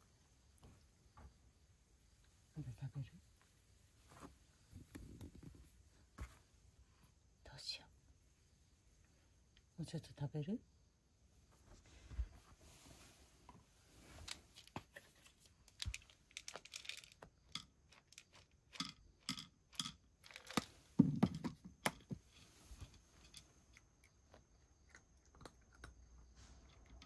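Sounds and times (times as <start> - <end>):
cat crunching kibble: 15.6 - 20.9, 23.6 - 27.0
dry cat food rattling into dish: 15.6 - 23.9.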